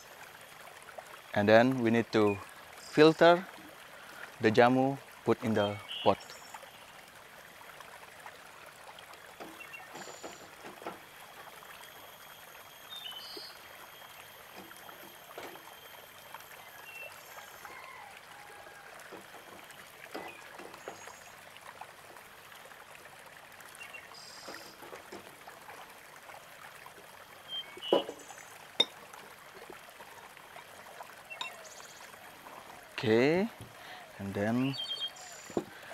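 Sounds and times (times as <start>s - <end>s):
liquid trickling: 0.0s - 35.9s
sharp knocks: 27.9s - 28.2s.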